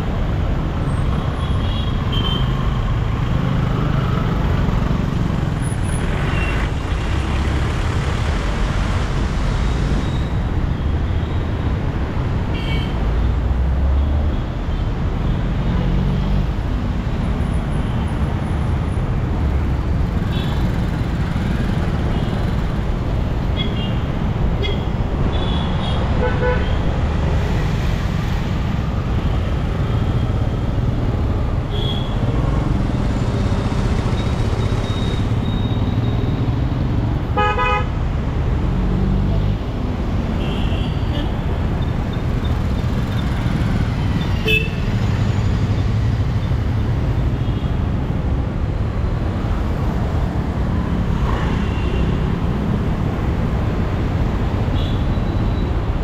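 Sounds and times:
road traffic: 0.0s - 56.0s
vehicle horns tooting: 37.4s - 37.9s.

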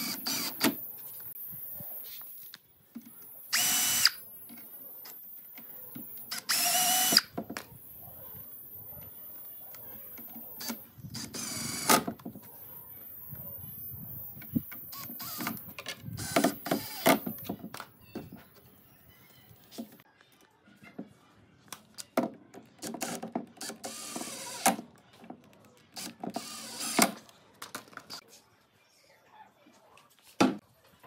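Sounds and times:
impact driver whining: 3.5s - 4.2s, 6.0s - 7.4s, 14.5s - 17.6s.

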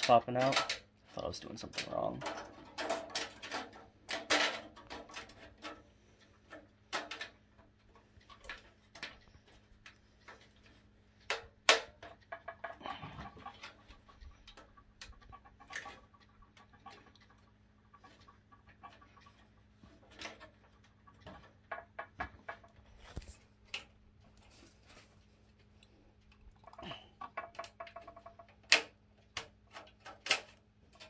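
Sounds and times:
sheet metal clicks and taps: 27.3s - 31.0s.

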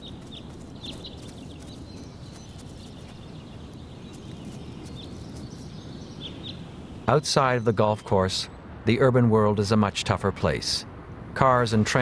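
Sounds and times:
bird chirps: 0.0s - 8.6s.

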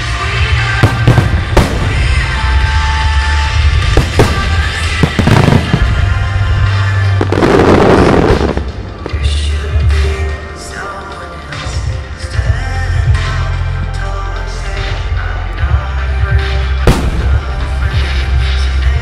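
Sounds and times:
recorded music with bass: 0.0s - 19.0s
fireworks bangs: 0.8s - 3.1s, 3.7s - 9.3s, 16.8s - 18.4s
loud rush of noise: 0.8s - 9.4s.

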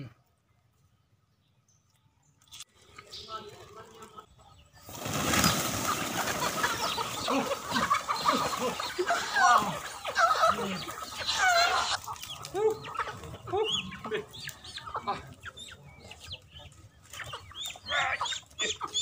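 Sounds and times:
chickens squawking and clucking: 3.1s - 19.0s
wings flapping: 4.8s - 13.4s.

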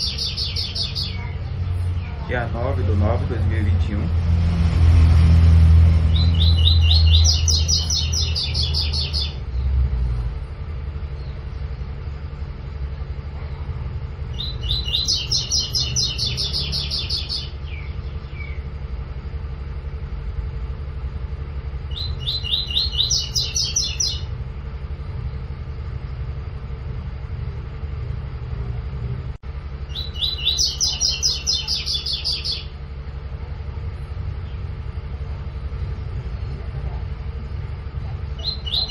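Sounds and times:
low rumble: 0.0s - 38.9s
bird singing high repeated notes: 5.9s - 9.6s, 14.3s - 18.7s, 21.9s - 24.3s.

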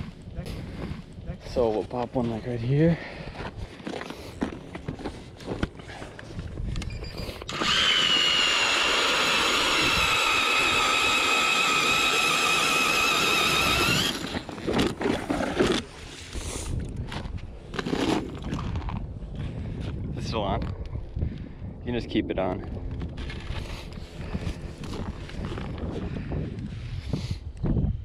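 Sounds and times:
electric ice auger whining: 7.4s - 16.0s.

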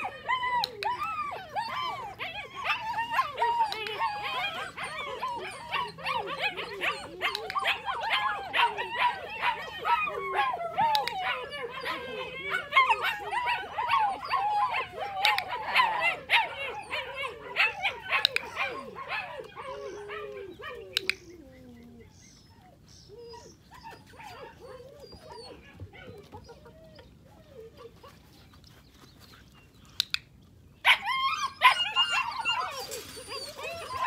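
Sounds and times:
puppies whining and yipping: 0.0s - 28.6s, 30.8s - 34.0s.

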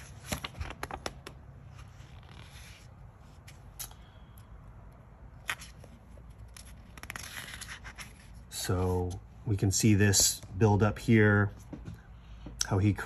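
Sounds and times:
paper pages rustling: 0.0s - 3.8s, 5.4s - 9.2s
fingers tapping on pages: 0.6s - 1.4s.

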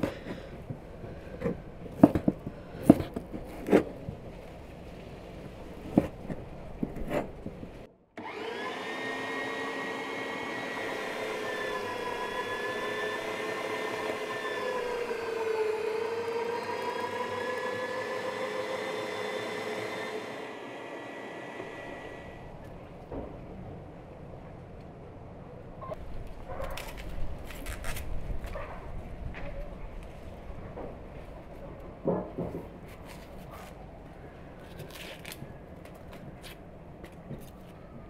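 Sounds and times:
electric meat grinder running: 8.2s - 22.4s.

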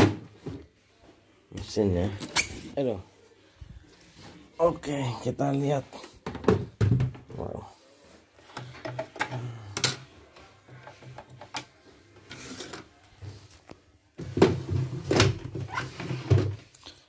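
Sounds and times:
plastic parts clicking and knocking: 8.5s - 10.1s, 10.8s - 11.8s.

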